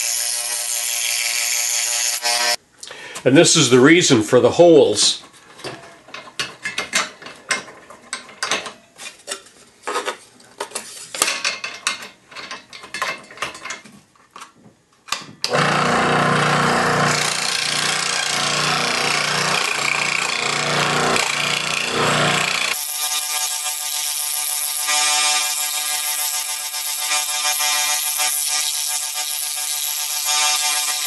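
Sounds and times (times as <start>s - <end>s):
scroll saw cutting wood: 0.0s - 2.6s, 15.5s - 31.0s.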